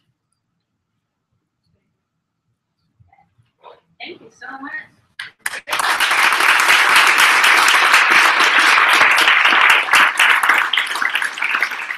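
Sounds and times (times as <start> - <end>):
audience applauding: 5.2 - 11.9.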